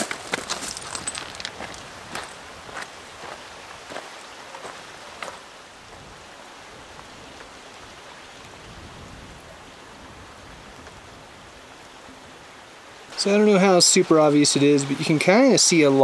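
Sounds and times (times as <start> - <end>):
footsteps crunching on loose rock: 0.0 - 5.4.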